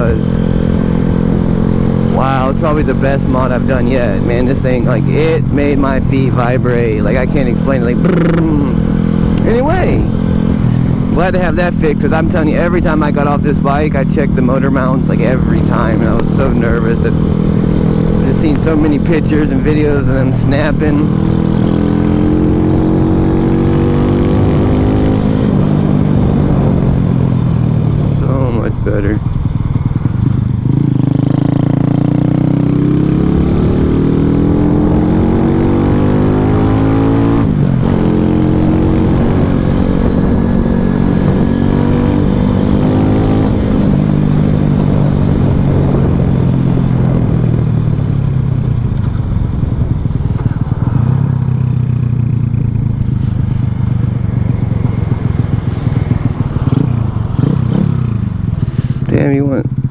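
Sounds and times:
mini bike engine revving: 53.0 - 59.9.

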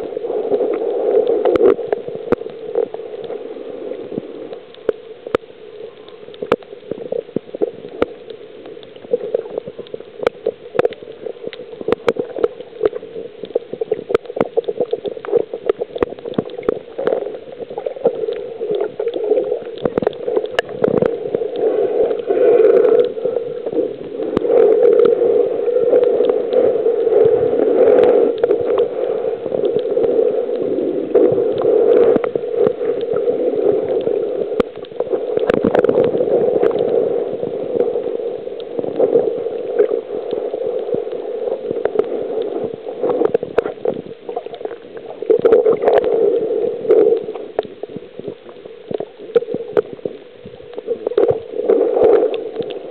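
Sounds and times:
muffled underwater water rush: 0.0 - 52.9
sharp clicks underwater: 0.0 - 52.9.

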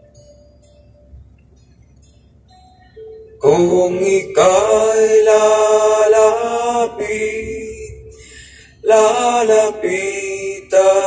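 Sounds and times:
man singing into microphone: 3.4 - 8.0, 8.8 - 11.0.

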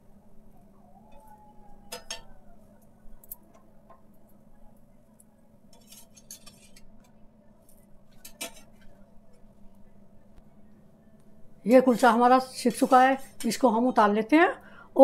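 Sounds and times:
spatula scraping iron griddle: 5.7 - 7.1, 8.1 - 9.0.

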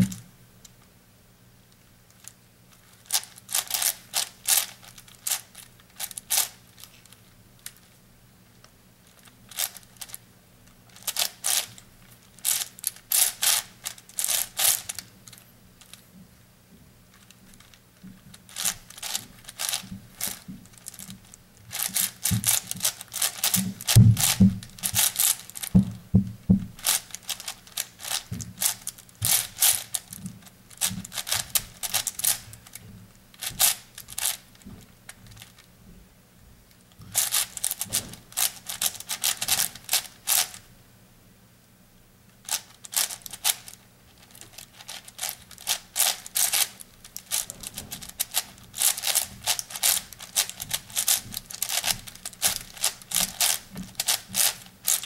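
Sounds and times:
puzzle cube clicking as twisted: 3.0 - 6.9, 9.2 - 10.2, 10.9 - 11.8, 12.4 - 16.0, 17.1 - 25.8, 26.8 - 32.8, 33.4 - 34.5, 37.1 - 40.6, 42.5 - 55.0.

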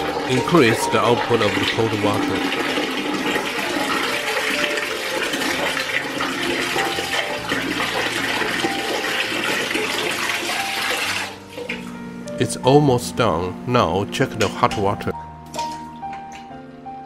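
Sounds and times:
water running from faucet: 0.0 - 12.1.

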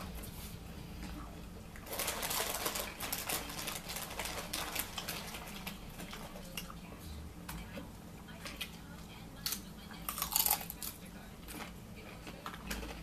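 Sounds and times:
plastic chip bag crinkling: 1.8 - 6.7.

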